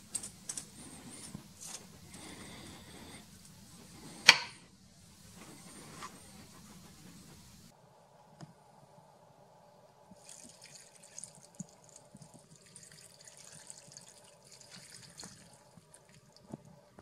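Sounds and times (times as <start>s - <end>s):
liquid trickling and splattering: 10.2s - 16.4s.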